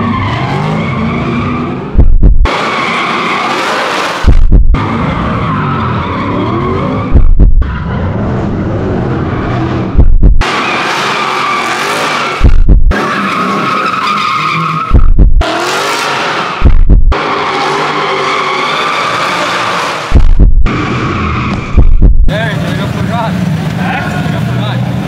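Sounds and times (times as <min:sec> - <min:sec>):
engines revving: 0:00.0 - 0:25.0
loud deep boom: 0:02.0 - 0:02.5, 0:04.2 - 0:04.8, 0:07.1 - 0:07.7, 0:09.9 - 0:10.4, 0:12.4 - 0:12.9, 0:16.6 - 0:17.1, 0:20.1 - 0:20.7, 0:21.6 - 0:22.3.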